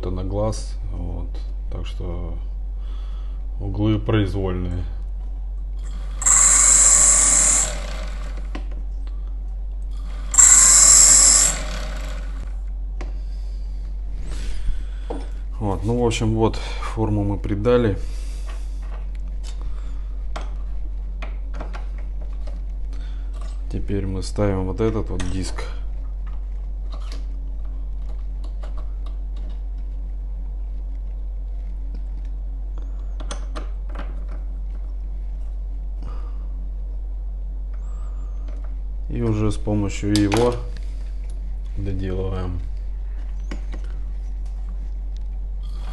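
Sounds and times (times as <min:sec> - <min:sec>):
steady low hum: 0:00.0 - 0:45.9
motor hum: 0:04.8 - 0:16.2
graver grinding on diamond disc: 0:05.9 - 0:08.5, 0:10.1 - 0:12.5.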